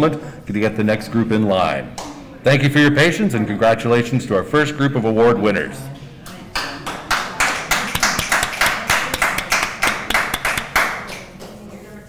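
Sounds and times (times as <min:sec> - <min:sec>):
hand clapping: 0:06.3 - 0:11.6.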